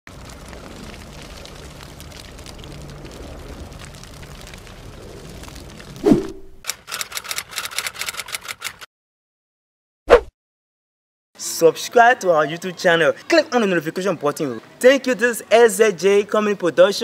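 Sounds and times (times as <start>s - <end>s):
rapid sharp clicks: 6.6s - 8.9s.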